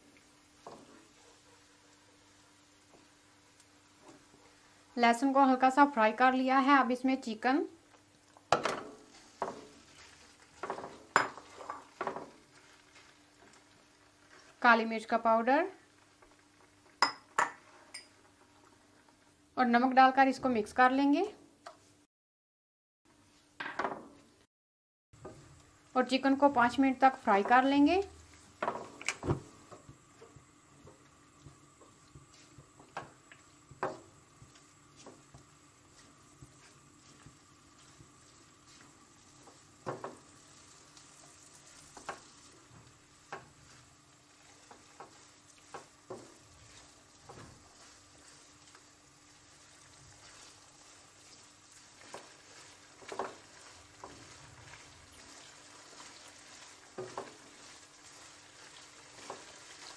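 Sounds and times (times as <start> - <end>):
faint sizzle of frying: 0.0 - 22.1, 25.2 - 59.9
spatula scraping a wok: 9.0 - 14.6, 33.8 - 59.9.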